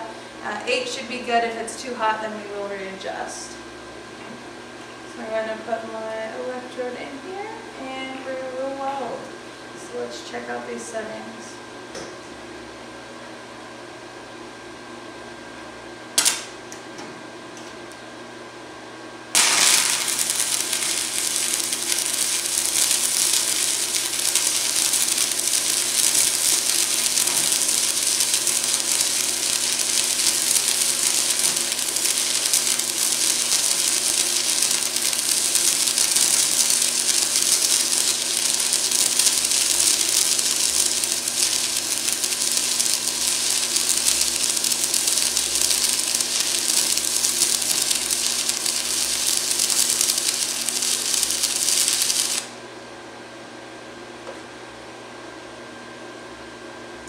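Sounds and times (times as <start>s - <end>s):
sharp snap: 16.2s - 16.5s
welding arc crackle and hiss: 16.2s - 16.6s, 19.3s - 52.6s.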